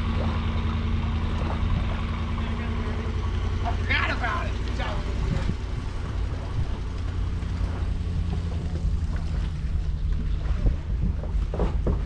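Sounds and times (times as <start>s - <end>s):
vehicle towing boat rumbling: 0.0s - 12.0s
wind noise on microphone: 4.9s - 7.0s.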